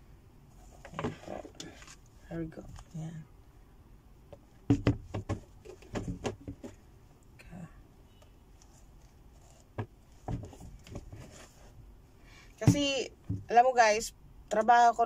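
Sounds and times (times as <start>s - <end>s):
sneakers knocking together: 4.6s - 6.8s, 9.8s - 11.2s, 12.6s - 13.5s.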